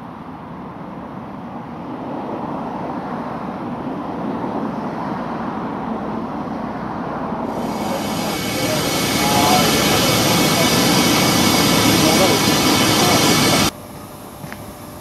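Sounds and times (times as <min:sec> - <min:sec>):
steady rumbling noise: 0:07.4 - 0:13.7.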